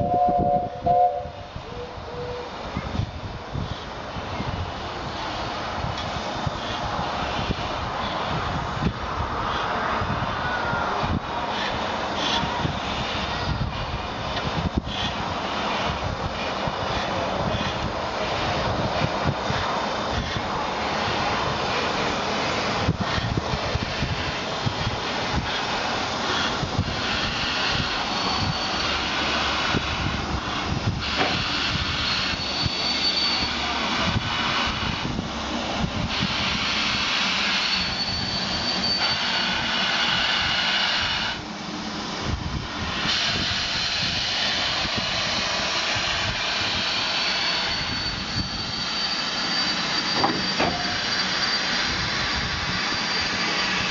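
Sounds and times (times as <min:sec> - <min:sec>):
steam hissing loudly: 0:00.0 - 0:53.9.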